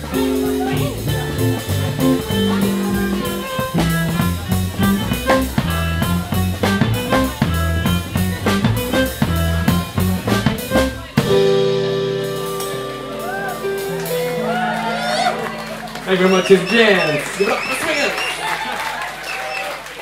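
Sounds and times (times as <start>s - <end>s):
drum hits: 0.0s - 12.9s
walking double bass: 0.0s - 17.5s
swing jazz band playing: 0.0s - 18.8s.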